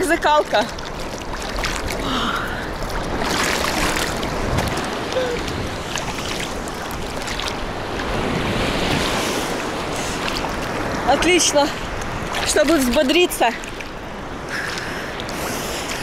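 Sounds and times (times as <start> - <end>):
surf rushing and sloshing: 0.0 - 16.0
wind on microphone: 1.5 - 13.3.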